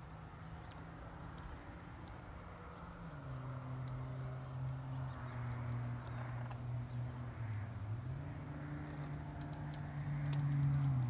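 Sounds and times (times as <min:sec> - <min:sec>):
soft beak clicks: 0:09.4 - 0:11.0.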